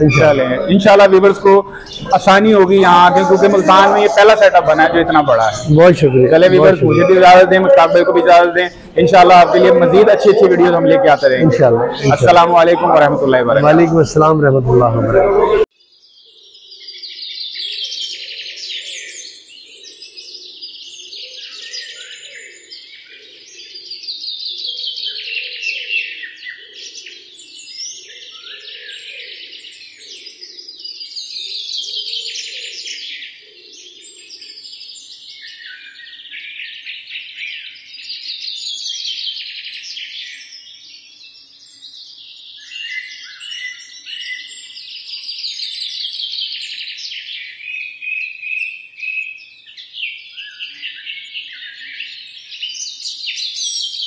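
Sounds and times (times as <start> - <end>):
small birds chirping: 0.0 - 14.5.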